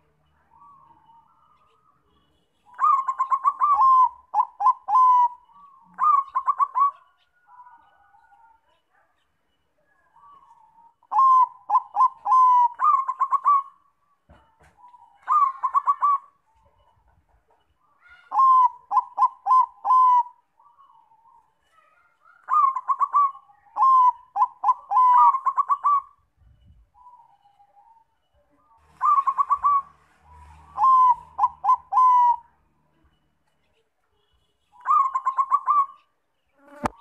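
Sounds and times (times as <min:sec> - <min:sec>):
dove cooing: 0:02.7 - 0:08.6, 0:10.2 - 0:17.0, 0:17.8 - 0:21.4, 0:22.2 - 0:26.2, 0:27.0 - 0:32.7, 0:34.8 - 0:37.0.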